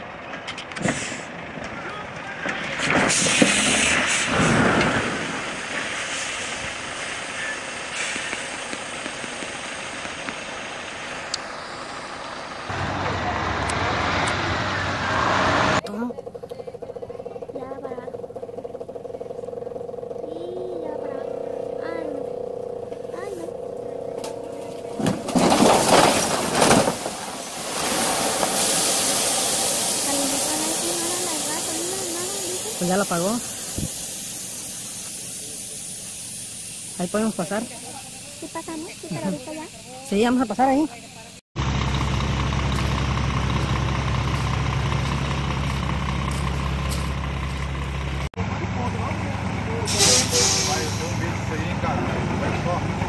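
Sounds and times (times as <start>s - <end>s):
truck engine running: 0.0s - 53.0s
truck crashing onto its side: 2.4s - 8.4s, 24.8s - 29.6s
loud steam hiss: 2.8s - 12.8s, 25.5s - 41.2s, 49.8s - 52.0s.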